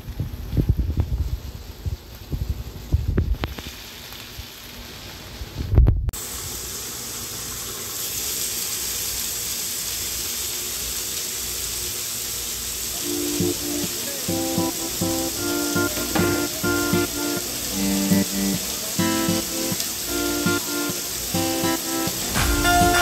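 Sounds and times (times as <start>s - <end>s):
chicken sizzling on a grill: 0.0s - 23.0s
plucked guitar music: 13.0s - 23.0s.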